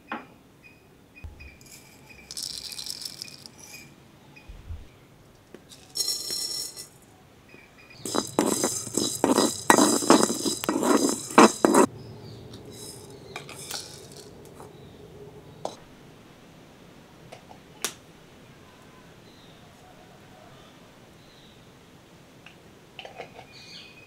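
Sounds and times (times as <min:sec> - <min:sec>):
faint clinks: 0:01.4 - 0:03.9, 0:05.7 - 0:07.1
spices rattling in a metal pan: 0:01.6 - 0:03.9, 0:05.7 - 0:07.0, 0:08.0 - 0:11.9, 0:12.6 - 0:14.4.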